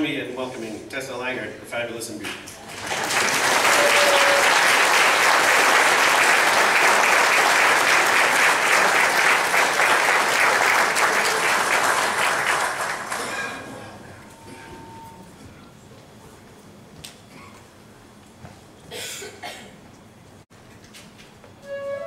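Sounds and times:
crowd applauding: 0:02.6 - 0:14.5.

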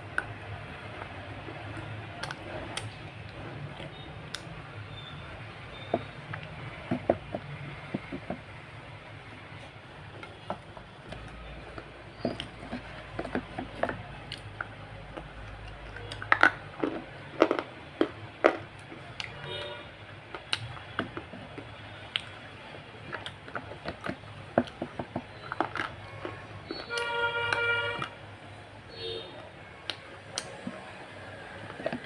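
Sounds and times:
crunchy chewing: 0:09.2 - 0:28.2, 0:29.8 - 0:32.0.

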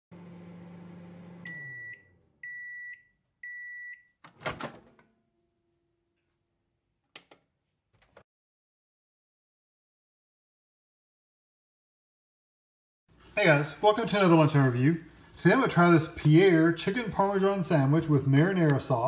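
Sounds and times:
microwave oven humming: 0:00.1 - 0:02.8.

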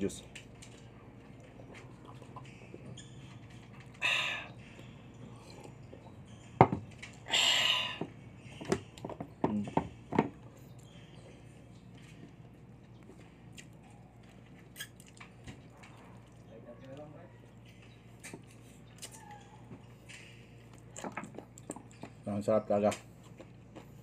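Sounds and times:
breathy exhales: 0:04.0 - 0:04.5, 0:07.3 - 0:08.1.

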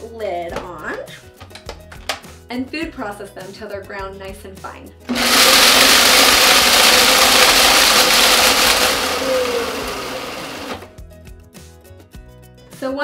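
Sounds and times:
food processor grinding crackers: 0:05.1 - 0:10.9.

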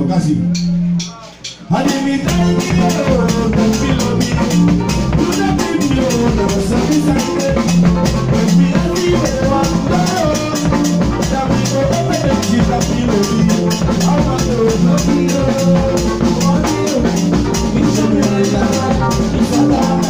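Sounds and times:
drum kit beat: 0:00.0 - 0:20.0
electronic keyboard playing: 0:00.0 - 0:20.0.

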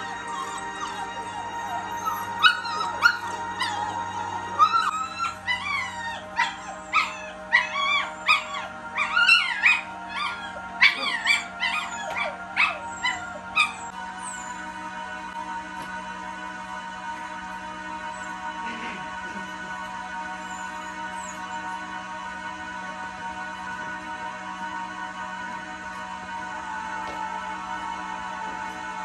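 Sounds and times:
puppy whining and yipping: 0:00.0 - 0:14.7, 0:20.4 - 0:21.8.

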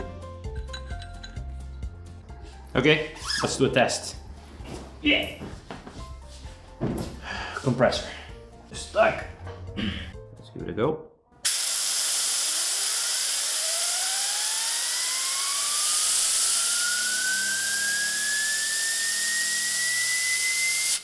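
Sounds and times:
compressed air hissing: 0:11.4 - 0:13.9
turbine whine rising: 0:11.5 - 0:21.0.

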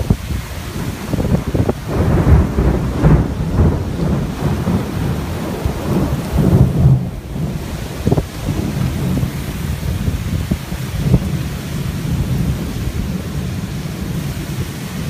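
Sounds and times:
gusting low rumble: 0:00.0 - 0:15.0
heavy rain hissing: 0:00.0 - 0:15.0.

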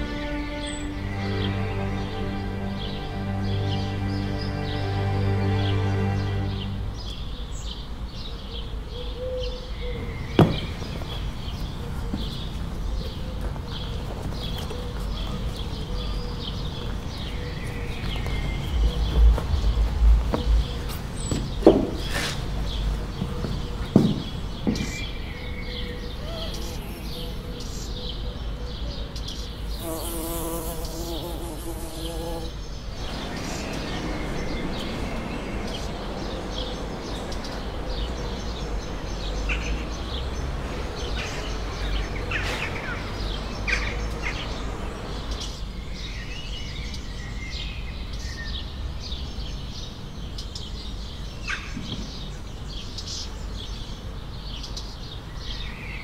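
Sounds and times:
bird chirps: 0:05.6 - 0:37.5
low rumble: 0:17.4 - 0:21.7
pitched buzzing: 0:29.6 - 0:32.5.

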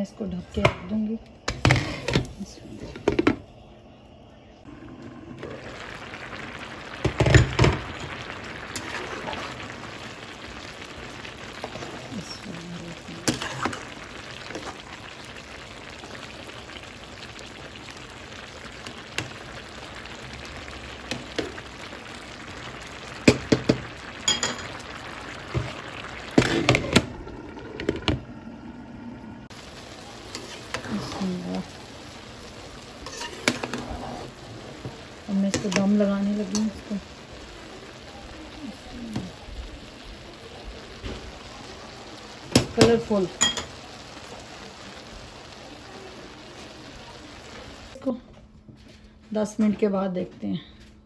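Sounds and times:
pot simmering with bubbling hiss: 0:01.2 - 0:48.2.

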